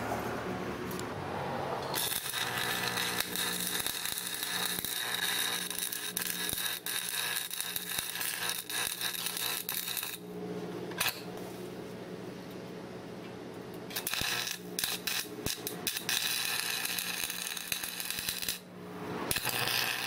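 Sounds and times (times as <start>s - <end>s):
steady low hum: 0.0s - 20.0s
welding arc crackling: 1.9s - 10.2s, 13.9s - 20.0s.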